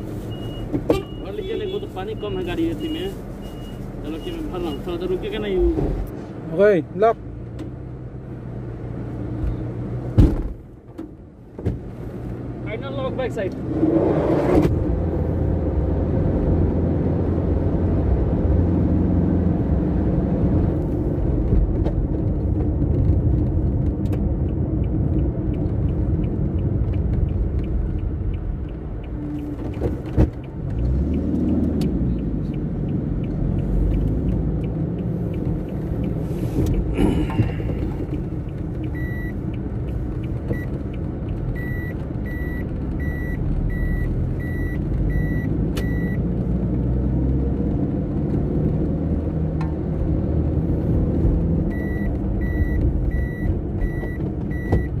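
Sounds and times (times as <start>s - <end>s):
vehicle engine and road rumble: 0.0s - 55.0s
reversing alarm beeping: 41.6s - 46.2s, 51.7s - 55.0s.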